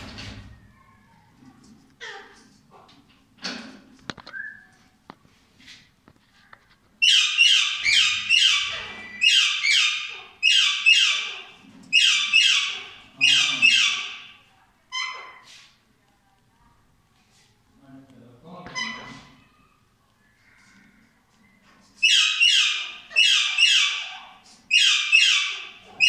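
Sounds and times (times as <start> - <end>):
parakeet nestlings begging calls: 7.0 - 14.3.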